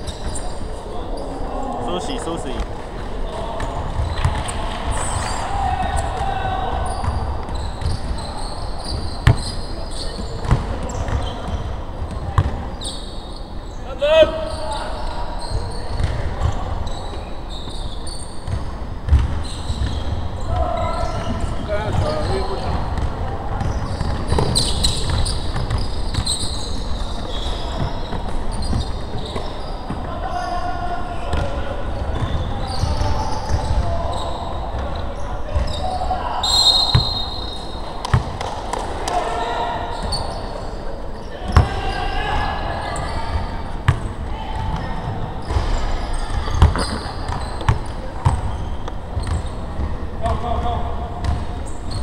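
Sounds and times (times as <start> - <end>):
echoing gym room noise: 0.0 - 52.0
shoes squeaking on hardwood: 45.5 - 49.6.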